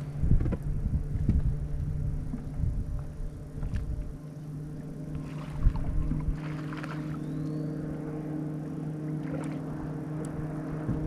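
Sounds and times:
wind rumbling on microphone: 0.0 - 4.2, 5.1 - 7.5, 9.2 - 11.0
electric trolling motor hum: 0.0 - 11.0.

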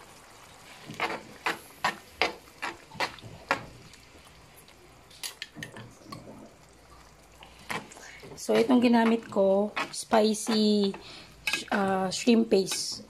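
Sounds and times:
utensil scraping a frying pan: 0.7 - 3.7, 7.6 - 11.8.

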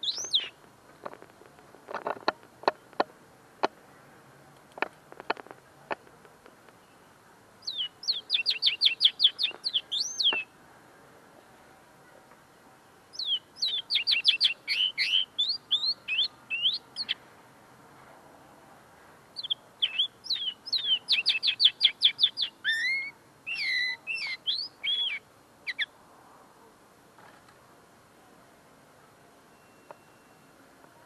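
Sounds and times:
songbird trilling: 0.0 - 0.6, 7.6 - 10.5, 13.1 - 17.2, 19.4 - 25.9.

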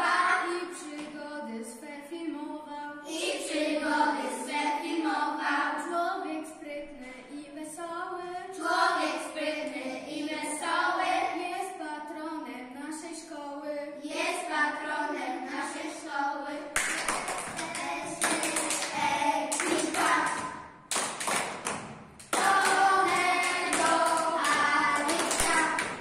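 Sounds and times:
children singing: 0.0 - 7.2, 8.5 - 11.8, 14.0 - 20.7, 22.3 - 26.0
hand claps: 16.8 - 26.0.

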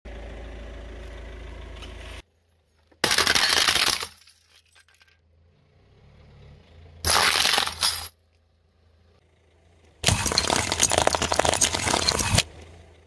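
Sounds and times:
clock glass crunching under tyre: 3.0 - 5.1, 7.1 - 8.2, 10.0 - 12.5.

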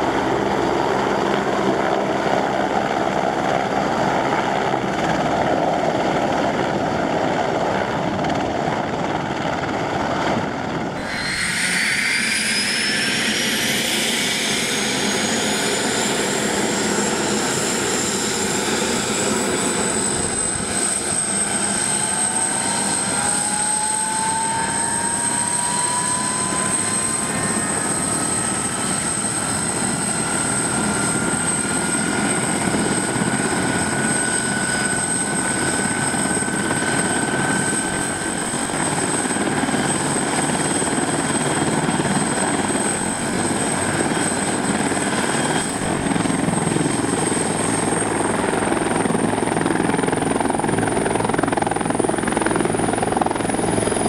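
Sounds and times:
helicopter hovering: 0.0 - 54.0
helicopter turbine whine: 0.0 - 54.0
lower whine climbing: 10.9 - 39.8.

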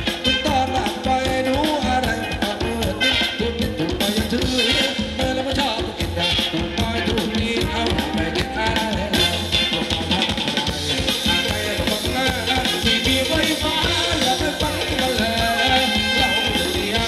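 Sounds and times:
drum beat: 0.0 - 17.0
live band dance music: 0.0 - 17.0.

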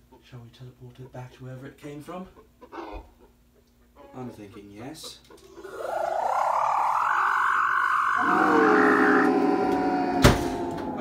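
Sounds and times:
warbling electronic whine: 5.5 - 9.5
falling buzzing tone: 5.6 - 11.0.

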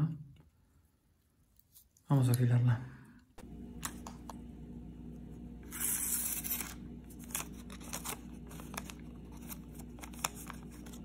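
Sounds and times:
knife slicing through paper: 5.6 - 11.0
paper ticks and rustles: 6.5 - 11.0.

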